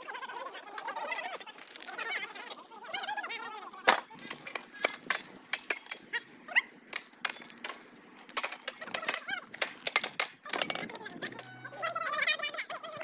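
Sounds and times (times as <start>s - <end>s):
metal tools clinking and knocking: 4.3s - 6.2s, 6.9s - 11.5s.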